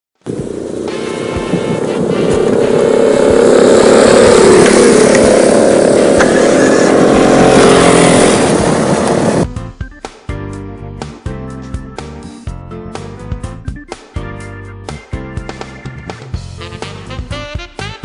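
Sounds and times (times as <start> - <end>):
scooter engine running hard: 0.2 - 9.5.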